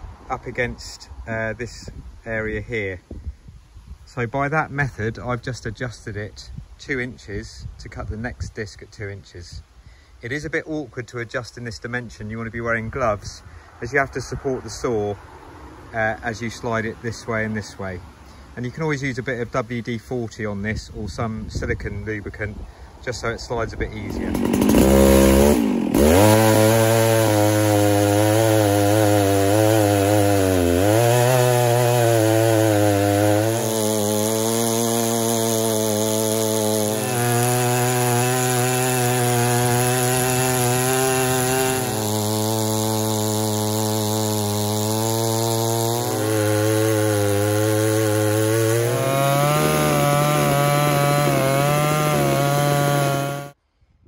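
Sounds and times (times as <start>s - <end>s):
chainsaw cutting log: 23.7s - 53.6s.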